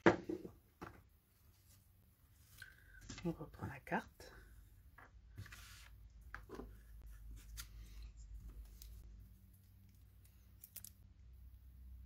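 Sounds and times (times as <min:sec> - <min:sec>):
paper and card rustling: 0:05.4 - 0:09.0.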